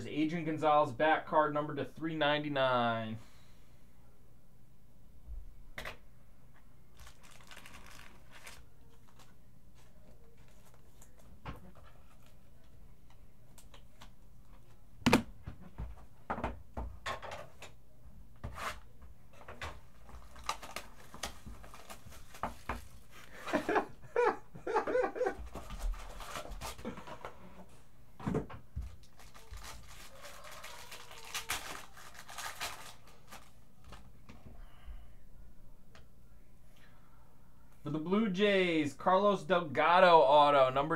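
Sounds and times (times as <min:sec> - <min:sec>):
foil wrapper crinkling: 0:06.9 - 0:11.2, 0:20.0 - 0:23.8, 0:28.9 - 0:34.0.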